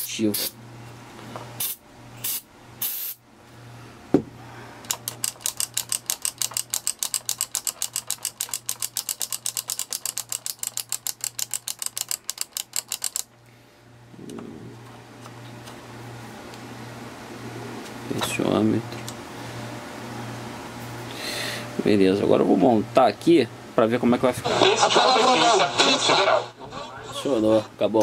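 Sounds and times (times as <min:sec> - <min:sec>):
short hiss: 0:01.6 - 0:03.2
single knock: 0:04.1 - 0:04.3.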